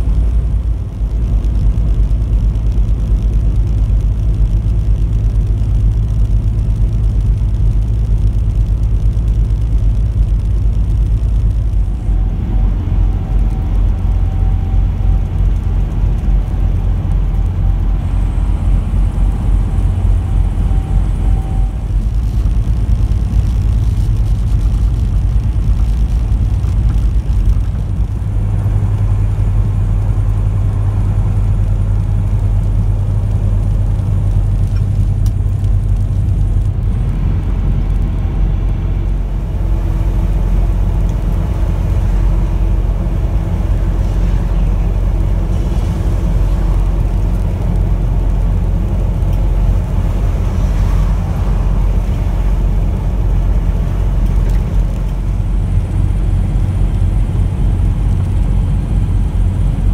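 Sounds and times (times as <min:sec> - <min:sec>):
faint whine: 0:00.0 - 0:59.9
truck engine and road drone: 0:00.0 - 0:59.9.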